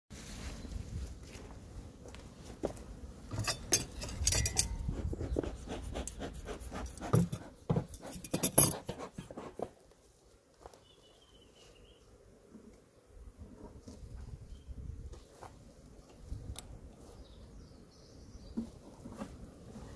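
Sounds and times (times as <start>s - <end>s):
phone rubbing against fabric: 4.6s - 9.7s.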